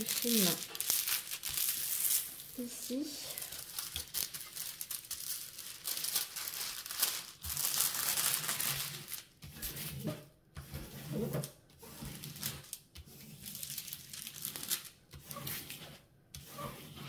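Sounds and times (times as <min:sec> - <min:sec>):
plastic film crinkling while peeled: 0:00.0 - 0:09.4, 0:11.9 - 0:15.5.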